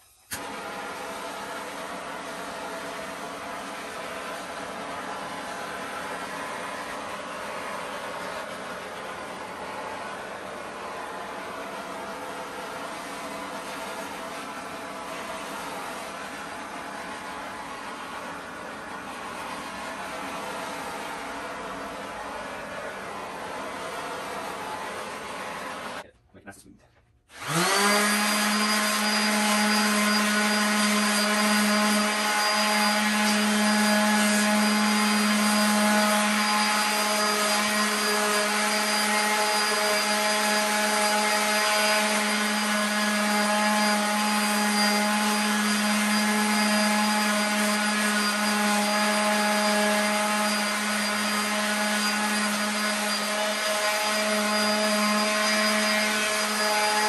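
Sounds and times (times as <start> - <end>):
orbital sander motor whine: 0.4 - 26.0, 27.3 - 57.0
sandpaper rasping on wood: 27.4 - 57.0.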